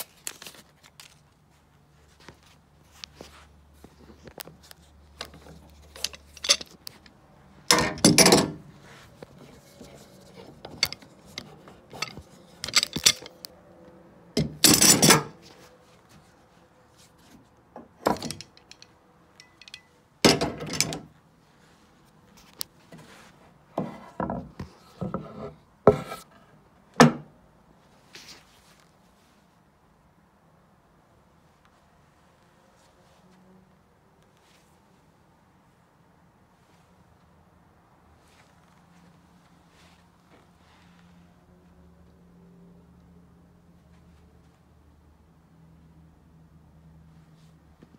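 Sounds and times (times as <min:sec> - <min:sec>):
wood and metal clunks and scrapes: 0:07.7 - 0:08.7, 0:09.5 - 0:13.4, 0:17.8 - 0:18.8, 0:19.4 - 0:21.1, 0:23.7 - 0:27.3.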